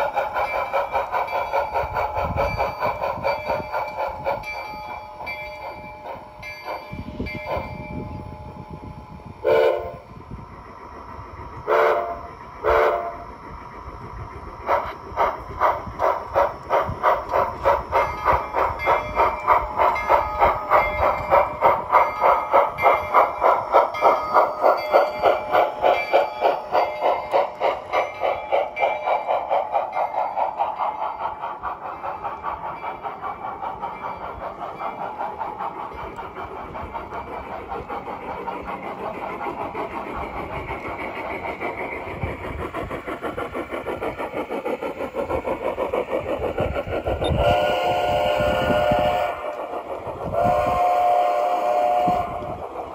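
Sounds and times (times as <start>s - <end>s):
model steam locomotive chuffing: 0.0s - 52.9s
multi-tone whistle: 47.2s - 49.5s, 50.4s - 52.5s.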